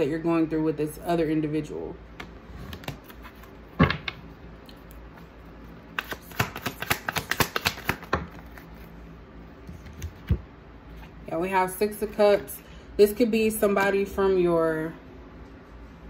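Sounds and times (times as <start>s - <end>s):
cards clicking while shuffled: 6.0s - 8.7s.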